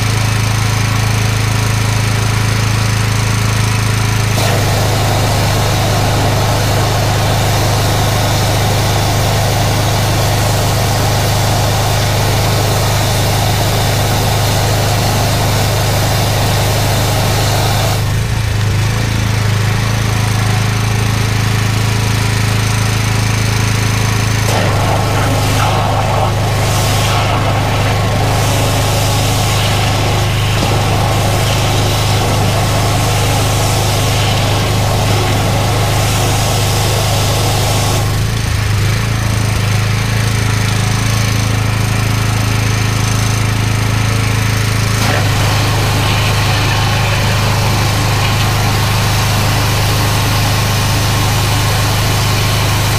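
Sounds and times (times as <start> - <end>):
machine engine running: 0.0 - 52.9
high-pressure water hiss: 4.3 - 18.2, 24.4 - 38.4, 44.7 - 52.9.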